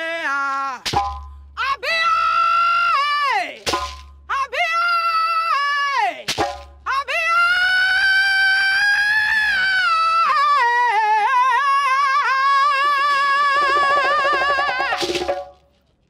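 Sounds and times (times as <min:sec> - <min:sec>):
lower voice singing: 0:08.2 - 0:15.1.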